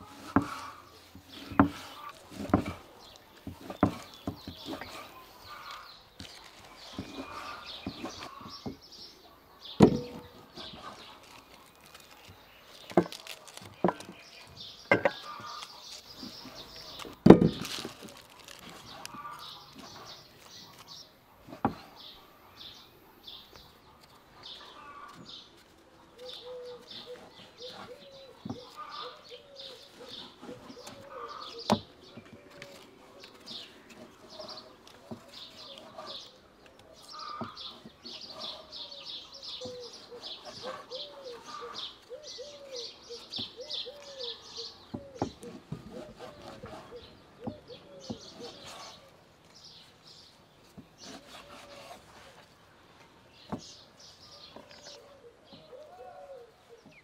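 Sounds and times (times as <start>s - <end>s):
vegetables being handled: 0.0s - 8.8s, 9.8s - 22.0s, 24.0s - 38.7s
small birds chirping: 0.0s - 57.0s
knife cutting on wooden board: 45.4s - 49.0s, 51.0s - 52.4s.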